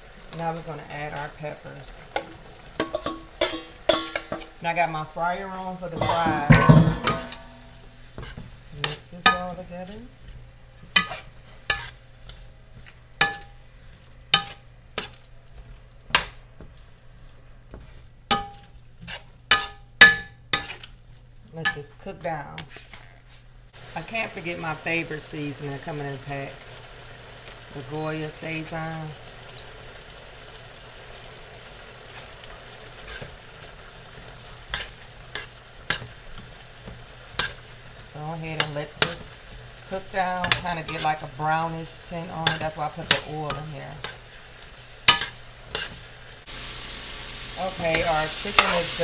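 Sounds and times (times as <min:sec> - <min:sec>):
faint frying sizzle: 0:00.0 - 0:49.0
metal utensil scraping a pan: 0:02.1 - 0:04.7, 0:05.8 - 0:10.0, 0:10.9 - 0:12.4, 0:13.2 - 0:13.6, 0:14.3 - 0:15.2, 0:17.8 - 0:21.0, 0:33.0 - 0:33.4, 0:34.6 - 0:37.6, 0:38.4 - 0:46.1, 0:47.6 - 0:49.0
metal spoon clinking on skillet: 0:02.2 - 0:04.6, 0:05.9 - 0:07.8, 0:08.8 - 0:09.6, 0:10.9 - 0:12.0, 0:13.2 - 0:13.6, 0:14.3 - 0:15.2, 0:18.3 - 0:20.8, 0:40.4 - 0:41.2, 0:42.4 - 0:44.2, 0:45.1 - 0:46.0, 0:47.6 - 0:49.0.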